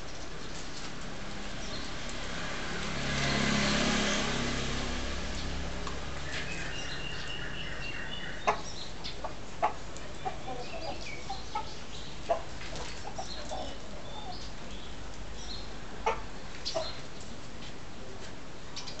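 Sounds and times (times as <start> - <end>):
rooster clucking: 6.4 - 14.0, 16.0 - 17.0.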